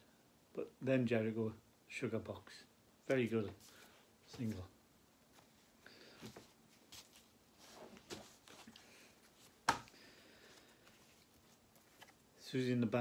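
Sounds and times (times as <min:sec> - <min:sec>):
record sleeves rustling: 0:03.1 - 0:13.0.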